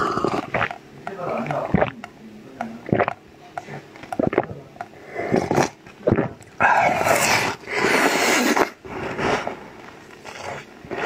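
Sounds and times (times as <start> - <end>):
biting and chewing: 0.0 - 3.2
mouth noises and small clicks: 0.0 - 8.8.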